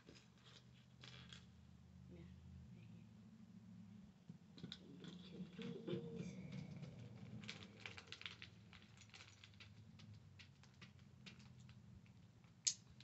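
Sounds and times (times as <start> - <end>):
plastic pieces clicking and rattling: 6.4 - 13.0.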